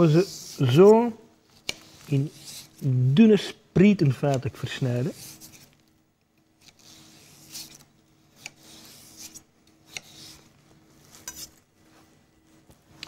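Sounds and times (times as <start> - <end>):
knife slicing vegetables: 6.6 - 11.6
soft scraping: 8.5 - 13.0.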